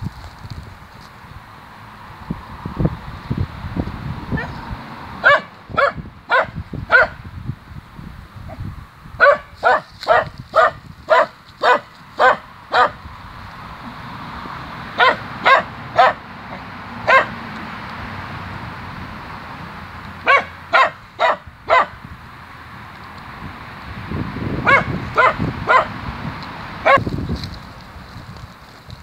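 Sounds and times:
rustle of dry stalks: 0.0 - 5.7, 7.4 - 29.0
small dog yapping: 9.2 - 13.0, 15.0 - 16.2, 17.1 - 17.3, 20.2 - 21.9.

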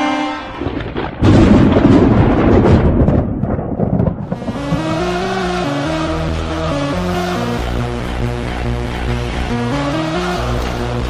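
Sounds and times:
hockey goal horn: 0.0 - 0.7
thunder crash sound effect: 0.4 - 8.6
electronic song: 4.3 - 11.0.

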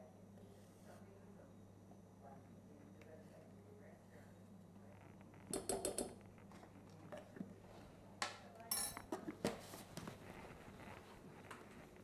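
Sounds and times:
metal spoon clinking on metal bowl: 8.7 - 9.1.

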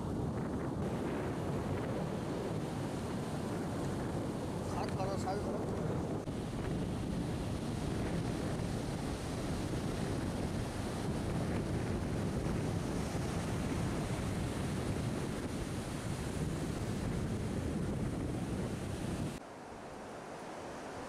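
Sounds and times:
surf waves breaking on beach: 0.0 - 21.0
wind rumbling on microphone: 0.0 - 21.0.

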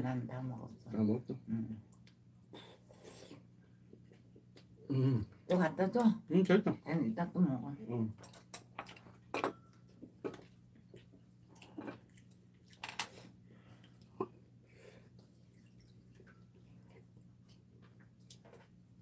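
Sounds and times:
faint low hum: 0.0 - 19.0
chewing: 10.0 - 14.3.

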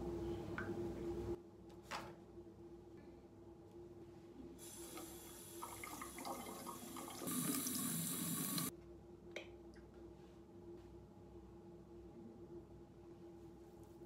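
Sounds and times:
faucet running into a sink: 4.6 - 8.7.

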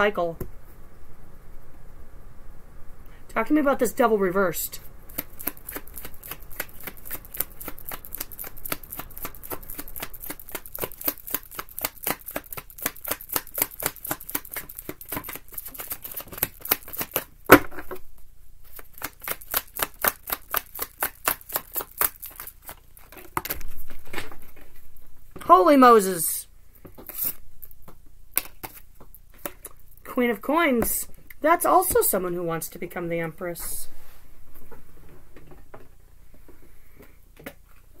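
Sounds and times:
cards being shuffled: 5.1 - 17.6, 18.6 - 24.7, 26.9 - 29.8.

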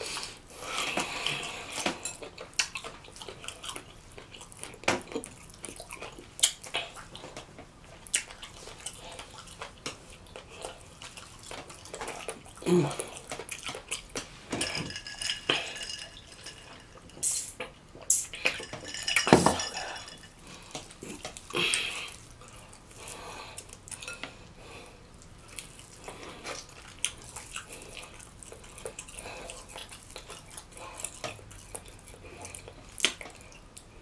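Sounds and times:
wet sounds of eating: 0.0 - 18.9, 19.6 - 34.0
glass and tableware clinking: 14.5 - 17.2, 18.4 - 20.4.

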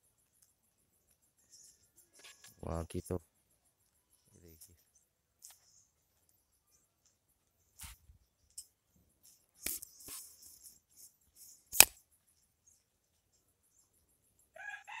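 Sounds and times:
sharp loud click: 11.7 - 12.0.

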